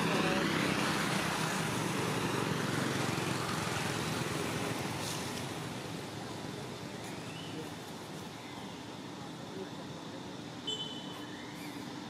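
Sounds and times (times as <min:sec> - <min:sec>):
passing vehicle: 0:00.0 - 0:07.8.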